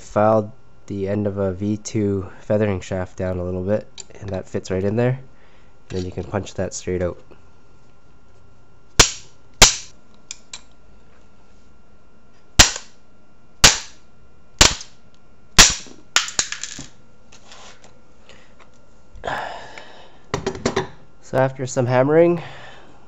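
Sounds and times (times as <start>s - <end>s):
hammer striking metal punch: 9.0s - 9.9s, 12.6s - 12.9s, 13.6s - 14.0s.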